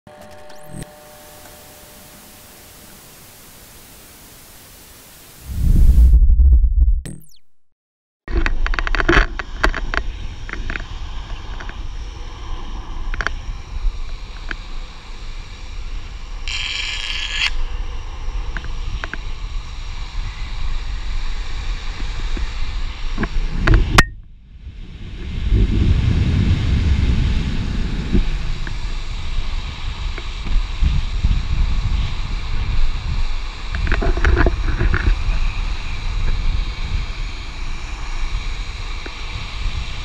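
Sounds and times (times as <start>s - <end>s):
wind on microphone: 5.3s - 7.1s, 17.6s - 40.0s.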